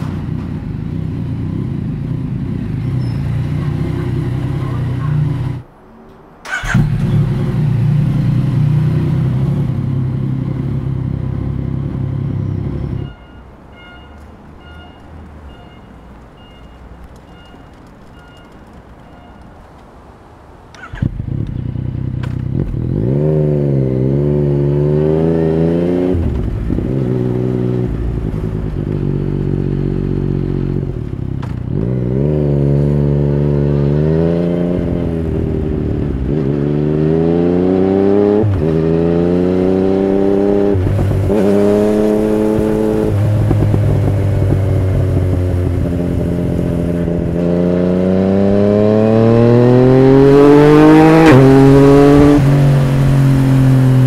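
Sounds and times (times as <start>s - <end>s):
motorcycle engine pulling away: 6.5s - 13.0s, 20.8s - 54.0s.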